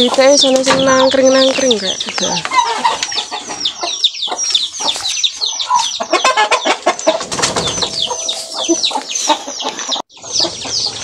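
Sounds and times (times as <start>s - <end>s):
chickens clucking and peeping: 0.0s - 11.0s
knocks and rustles: 7.2s - 8.6s.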